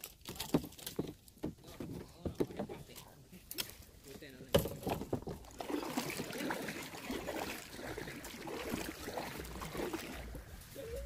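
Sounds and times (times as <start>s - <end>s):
kayak paddle splashing: 0.0s - 11.0s
water dripping: 5.4s - 10.6s.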